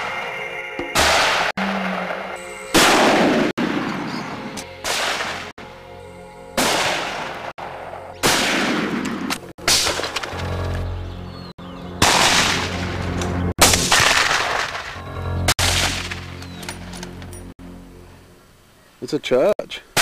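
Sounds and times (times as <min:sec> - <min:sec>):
gunshots: 0:01.0 - 0:05.5, 0:06.6 - 0:10.4, 0:12.0 - 0:12.9, 0:13.6 - 0:15.0, 0:15.6 - 0:16.4.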